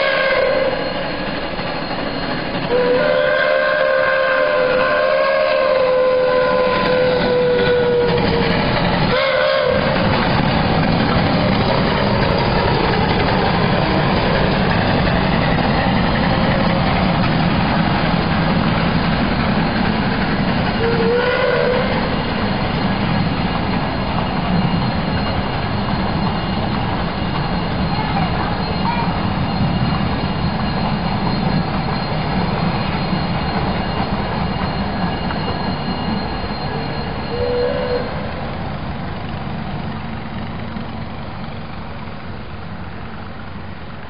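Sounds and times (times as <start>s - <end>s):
train horn blasts: 0.0s - 1.0s, 2.7s - 8.4s, 9.1s - 10.0s, 20.8s - 22.2s, 37.3s - 38.4s
train running rumble: 0.0s - 44.0s.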